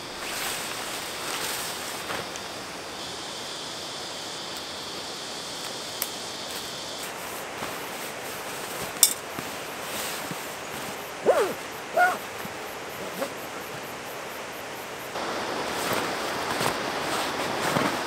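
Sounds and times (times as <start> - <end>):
steady outdoor hiss: 0.0 - 18.0
fabric rustling: 15.7 - 18.0.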